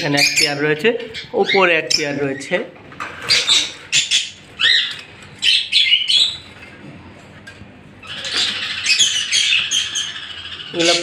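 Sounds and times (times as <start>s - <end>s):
budgerigars chirping: 0.0s - 2.6s, 3.2s - 6.6s, 8.0s - 11.0s.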